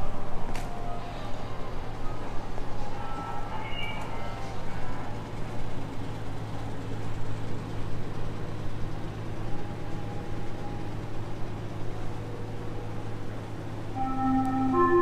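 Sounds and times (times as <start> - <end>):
air-handling equipment hum: 4.4 - 15.0
faint high tone: 14.0 - 15.0.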